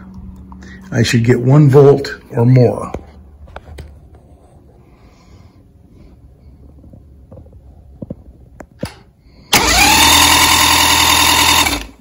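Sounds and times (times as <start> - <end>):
electric starter cranking engine: 8.8 - 12.0.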